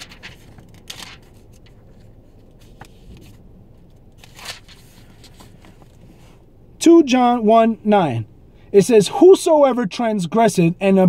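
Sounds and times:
faint rustling of handling: 0.0s - 6.4s.

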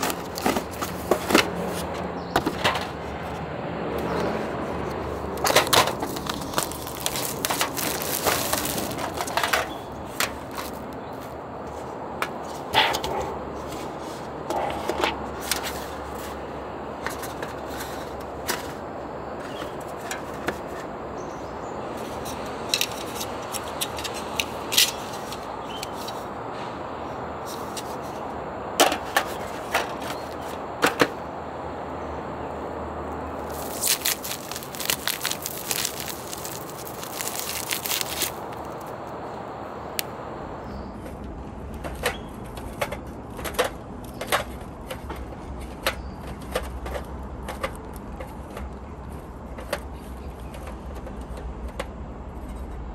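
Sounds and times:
aluminium foil crinkling: 0.0s - 1.1s, 5.4s - 9.8s, 33.4s - 38.9s
steady background noise: 0.0s - 52.9s.

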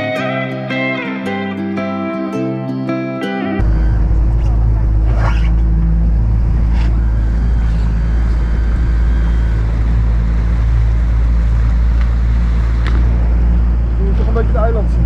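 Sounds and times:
outboard engine running: 3.6s - 15.0s.

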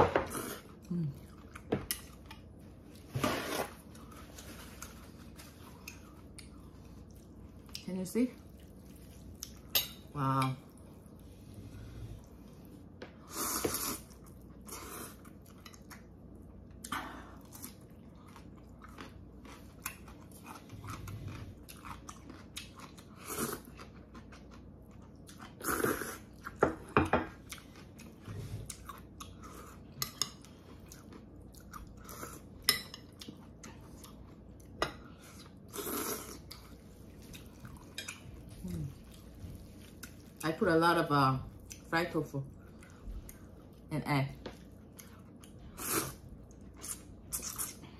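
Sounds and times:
chewing: 16.7s - 26.6s, 27.4s - 40.4s.

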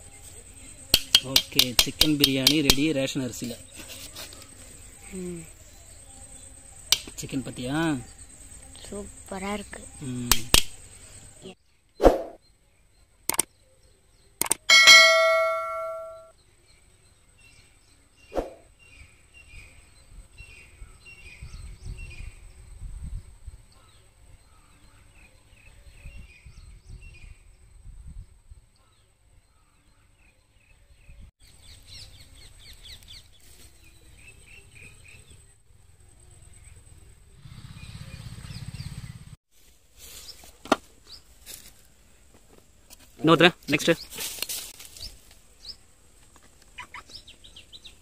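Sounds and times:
small birds chirping: 0.0s - 27.7s, 28.8s - 39.4s, 40.0s - 48.0s
steel ladle clinking on metal pot: 14.7s - 16.3s.

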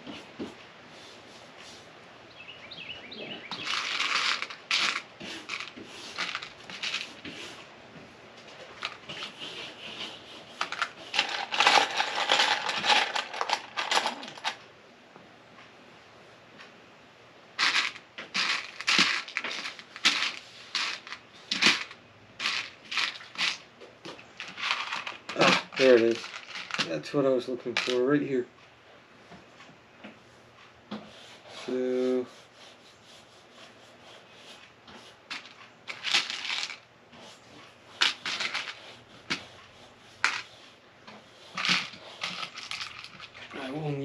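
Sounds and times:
plastic pieces clattering in dish: 3.5s - 7.0s, 10.6s - 14.6s, 17.6s - 23.6s, 24.4s - 26.9s, 35.3s - 36.8s, 41.6s - 43.5s.

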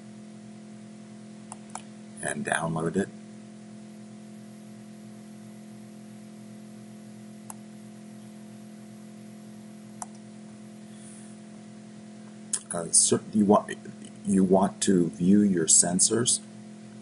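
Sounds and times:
steady low hum: 0.0s - 17.0s
computer mouse clicks: 1.5s - 1.9s, 10.0s - 10.2s.

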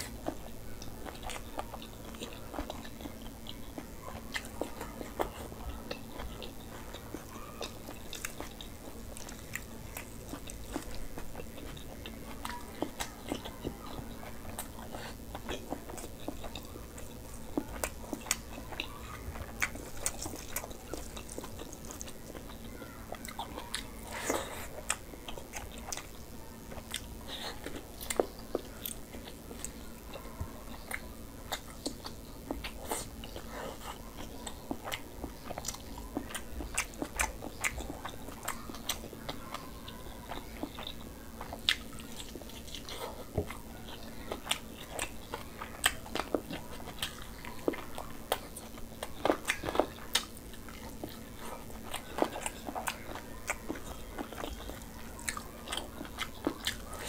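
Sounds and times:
man chewing chicken: 0.0s - 57.0s.

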